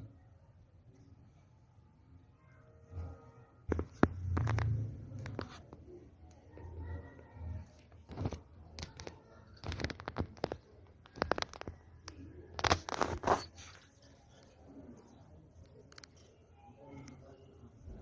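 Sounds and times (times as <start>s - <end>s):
scraping clicking and crackling: 3.7s - 17.4s.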